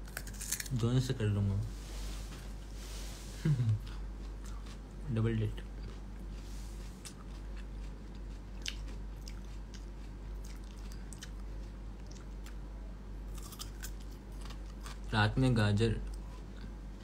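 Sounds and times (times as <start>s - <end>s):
person chewing raw carrot: 3.8s - 12.6s, 13.3s - 15.1s.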